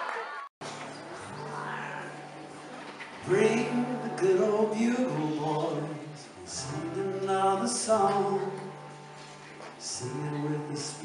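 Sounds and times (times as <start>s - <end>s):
acoustic guitar: 0.6s - 11.0s
man singing: 3.2s - 9.0s, 9.8s - 11.0s.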